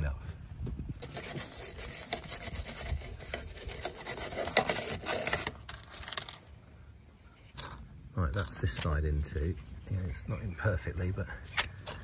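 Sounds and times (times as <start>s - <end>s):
wire brush scrubbing rusty metal: 1.0s - 6.3s.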